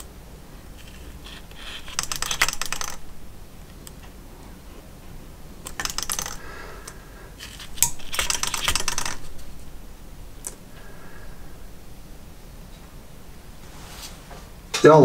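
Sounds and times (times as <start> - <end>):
small metal parts clicking: 0.8 - 3.1, 5.6 - 9.7.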